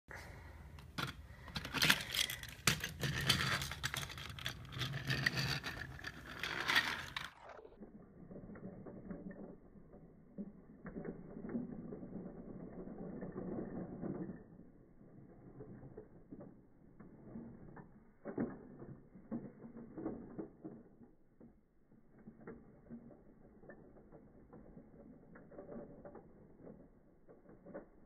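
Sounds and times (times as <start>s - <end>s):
toy trains clattering and clicking: 0.6s - 28.0s
toy train motor whirring: 1.5s - 7.5s.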